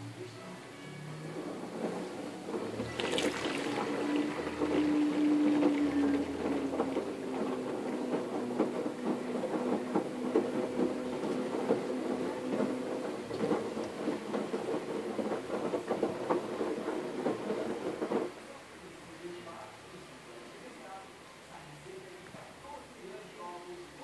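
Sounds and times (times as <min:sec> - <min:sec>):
washing machine motor hum: 0:00.0 - 0:20.4
water swishing and splashing: 0:02.7 - 0:07.0.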